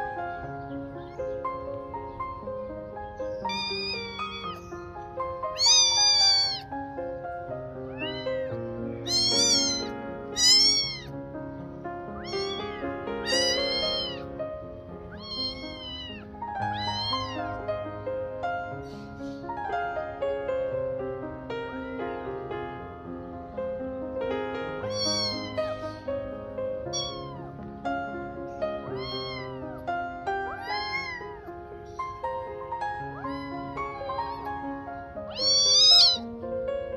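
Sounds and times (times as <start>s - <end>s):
piano background music: 0.0s - 36.9s
kitten meowing: 0.4s - 1.8s, 2.8s - 6.9s, 7.5s - 11.2s, 12.0s - 18.1s, 24.8s - 36.4s.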